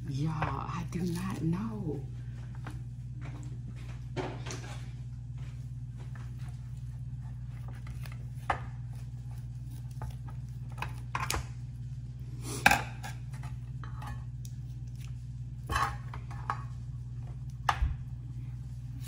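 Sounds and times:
low hum: 0:00.0 - 0:19.0.

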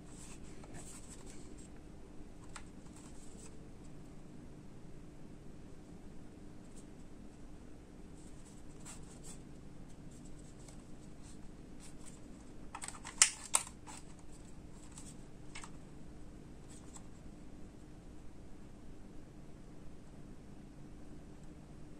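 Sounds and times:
plastic handling clicks and rustles: 0:02.4 - 0:03.5, 0:12.0 - 0:15.8.

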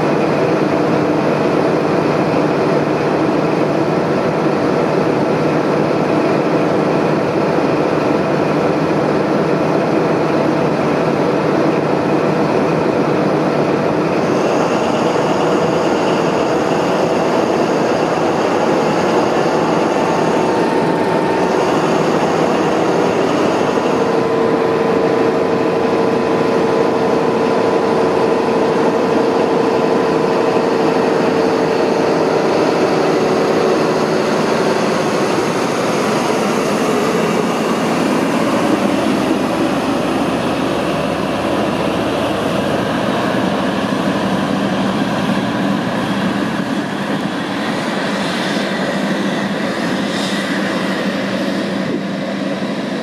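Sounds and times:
high whine: 0:00.0 - 0:53.0
diesel engine droning: 0:12.5 - 0:53.0.

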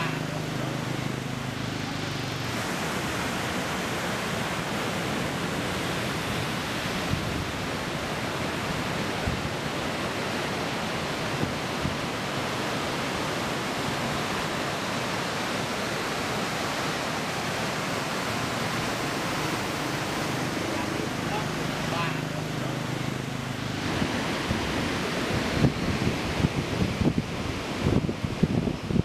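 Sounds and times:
surf breaking on beach: 0:00.0 - 0:29.0.

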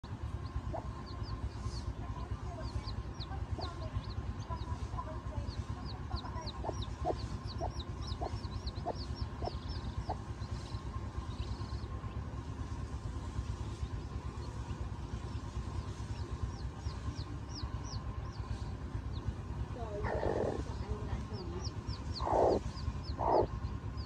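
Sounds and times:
hen clucking: 0:00.0 - 0:12.2, 0:13.3 - 0:24.0
chicks peeping: 0:00.0 - 0:24.0
low rumble: 0:00.0 - 0:24.0.

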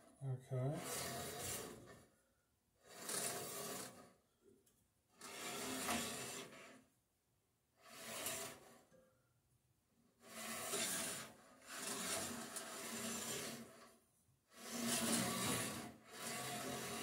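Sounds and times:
bandsaw blade rasping rub: 0:00.8 - 0:02.0, 0:02.8 - 0:04.0, 0:07.8 - 0:08.8, 0:10.2 - 0:13.9, 0:14.5 - 0:17.0.

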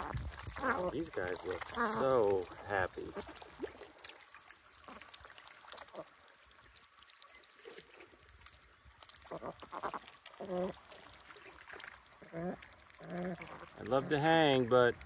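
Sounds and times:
ducks dabbling in water: 0:00.0 - 0:15.0.

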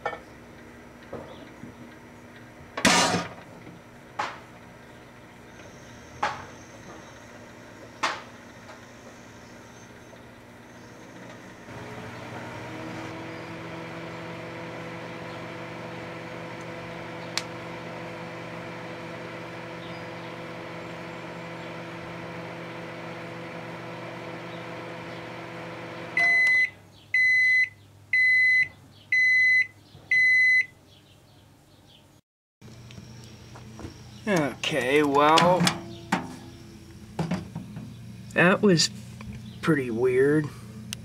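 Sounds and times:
microwave oven humming: 0:00.0 - 0:31.0, 0:32.6 - 0:41.0
microwave beeps: 0:05.4 - 0:11.7, 0:26.1 - 0:30.8.

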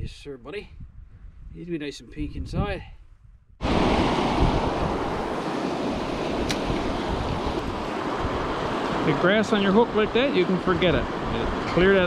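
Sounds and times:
wind buffeting microphone: 0:00.0 - 0:12.0
brief click: 0:06.4 - 0:06.7.

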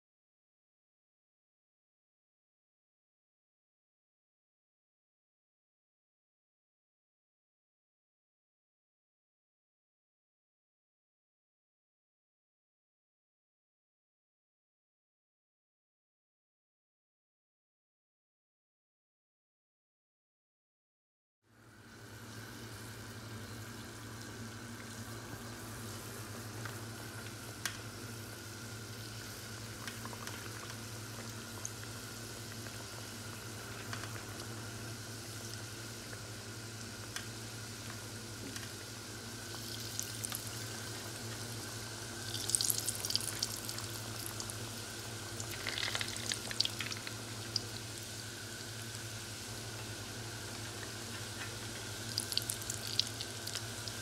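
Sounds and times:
dough sizzling in hot oil: 0:21.6 - 0:54.0
oil crackling and spitting: 0:42.2 - 0:44.7, 0:45.3 - 0:47.6, 0:52.1 - 0:54.0.

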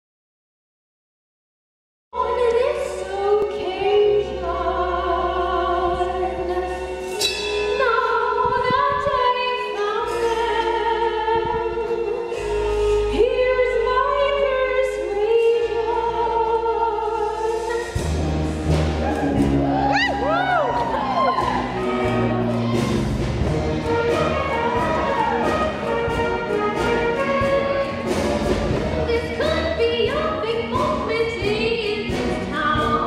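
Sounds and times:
instrumental accompaniment: 0:02.2 - 0:33.0
voices singing with vibrato: 0:19.0 - 0:33.0.

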